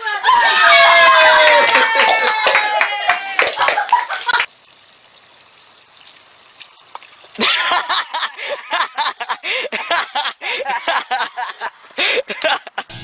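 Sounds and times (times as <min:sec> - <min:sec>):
young people shrieking: 0:00.0 - 0:03.7.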